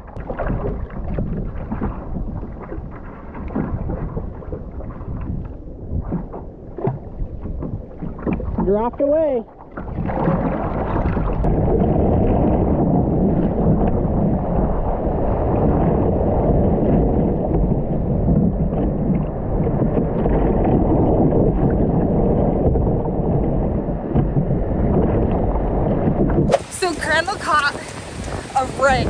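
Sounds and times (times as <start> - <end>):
water sloshing around kayak: 0.0 - 29.0
wind buffeting microphone: 0.0 - 29.0
surf rushing: 26.2 - 29.0.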